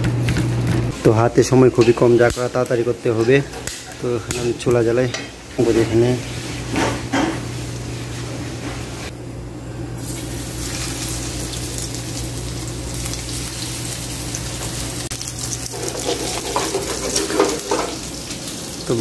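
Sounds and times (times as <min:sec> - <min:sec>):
fish sizzling in hot oil: 0:10.0 - 0:19.0.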